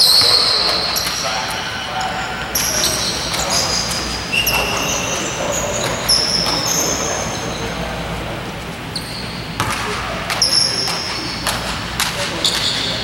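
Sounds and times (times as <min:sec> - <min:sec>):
murmur of voices: 0:00.0 - 0:13.0
shoes squeaking on wooden floor: 0:02.5 - 0:07.7.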